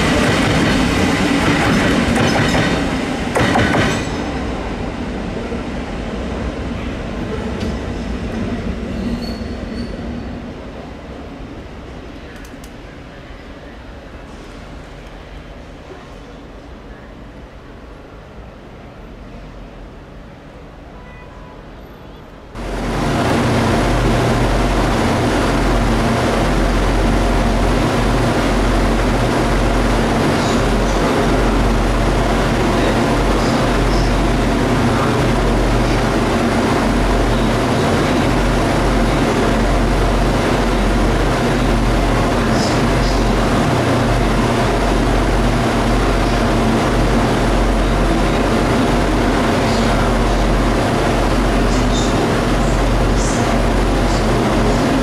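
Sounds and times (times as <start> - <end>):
diesel locomotive engine drone: 0.0 - 16.3, 22.5 - 55.0
train wheels rumbling on rail: 0.0 - 16.5, 22.4 - 55.0
faint high squeaks: 9.0 - 10.1.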